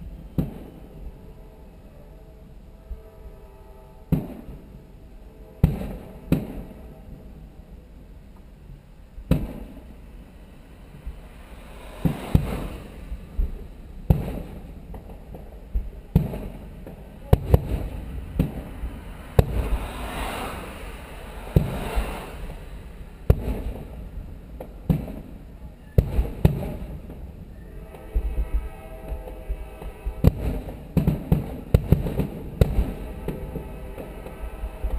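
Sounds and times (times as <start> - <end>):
fireworks bangs with echoes: 0.0 - 1.1, 4.1 - 4.8, 5.6 - 7.3, 9.2 - 10.1, 10.9 - 20.1, 21.1 - 28.3, 29.1 - 34.7
fireworks crackling: 0.0 - 1.4, 4.1 - 4.8, 5.5 - 7.5, 8.4 - 34.9.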